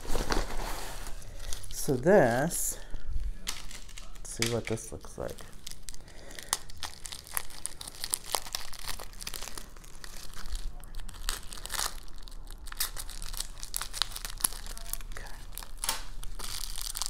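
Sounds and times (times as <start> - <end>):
bubble wrap crinkling: 0.0 - 17.0
plastic tearing: 3.4 - 17.0.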